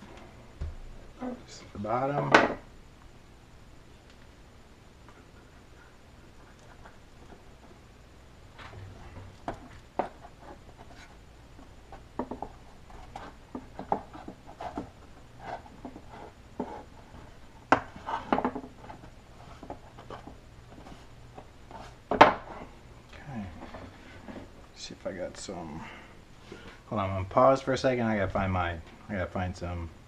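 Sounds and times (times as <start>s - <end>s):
hands handling wood and tools: 8.5s - 22.8s.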